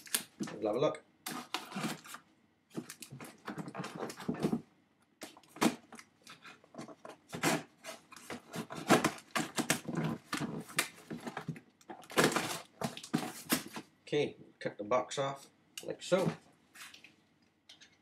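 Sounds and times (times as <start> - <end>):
cardboard scraping and rustling: 1.3 - 2.2, 2.8 - 4.6, 5.5 - 13.9
knife cutting cardboard box: 1.3 - 2.2, 5.6 - 11.5, 12.1 - 13.8.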